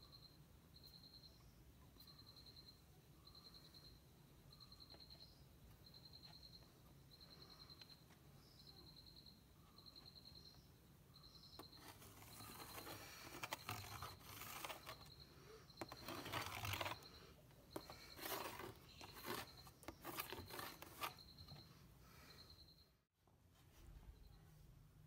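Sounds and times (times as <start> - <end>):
pencil scratching on plastic: 11.6 - 21.6.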